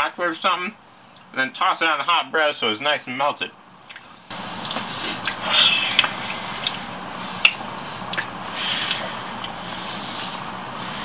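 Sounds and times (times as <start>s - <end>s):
steady hiss: 0.0s - 11.0s
breathing swells: 4.2s - 11.0s
mouth clicks: 7.4s - 9.8s.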